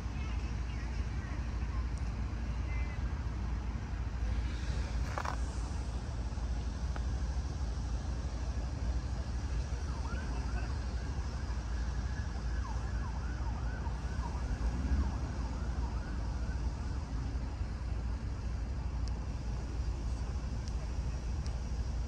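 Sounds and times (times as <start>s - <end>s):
steady low rumble: 0.0s - 22.0s
faint siren-like sweeps: 9.2s - 17.9s.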